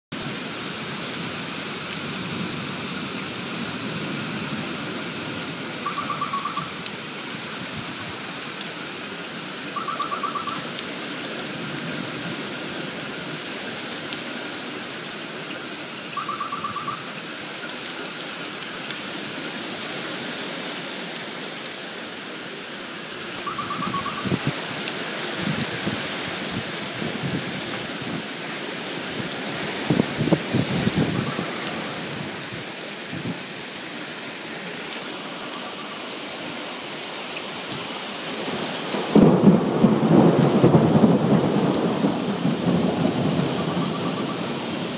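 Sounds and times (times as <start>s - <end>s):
heavy rain pouring: 0.1s - 44.9s
rapid trilled call: 5.8s - 6.8s, 9.8s - 10.7s, 16.2s - 17.1s, 23.4s - 24.4s.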